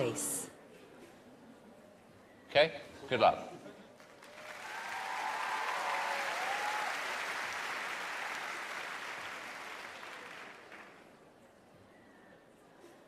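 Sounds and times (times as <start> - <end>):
studio audience applauding: 4.0 - 11.1.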